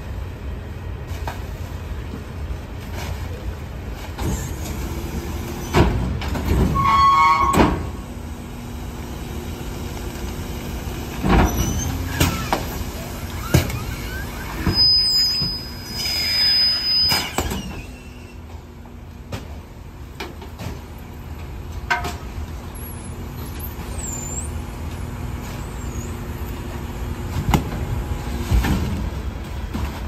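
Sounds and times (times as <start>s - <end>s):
thin high whistle: 14.0s - 18.3s.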